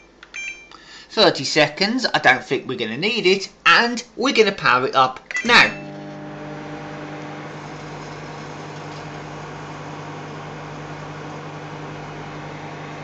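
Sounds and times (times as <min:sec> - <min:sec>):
microwave oven humming: 0:05.5 - 0:13.0
fan noise: 0:05.8 - 0:13.0.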